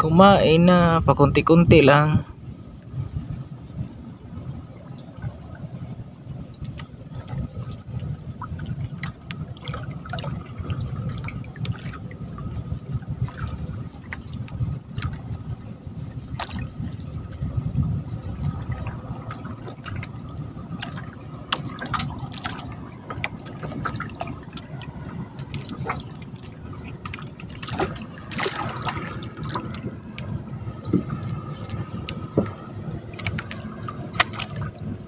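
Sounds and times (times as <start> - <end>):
water sloshing and dripping: 2.7 - 35.0
small splashes and knocks: 8.4 - 12.6, 13.2 - 15.2, 16.3 - 17.3, 18.5 - 35.0.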